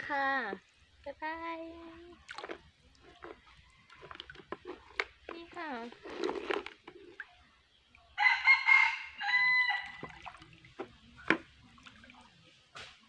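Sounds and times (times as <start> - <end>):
rooster crowing: 8.2 - 10.1.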